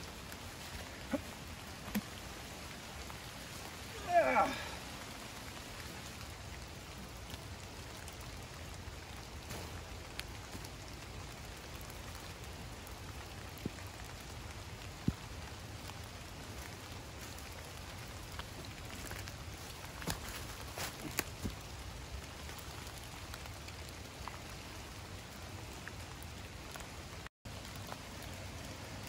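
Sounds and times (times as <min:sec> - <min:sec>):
steady rain falling: 0:00.0 - 0:29.0.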